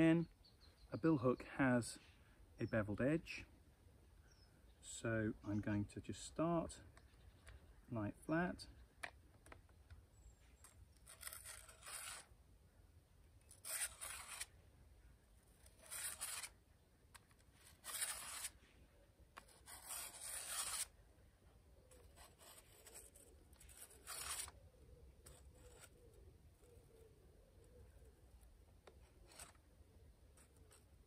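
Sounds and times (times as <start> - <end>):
blade scraping on sharpening plate: 17.8 - 18.6, 19.7 - 20.9.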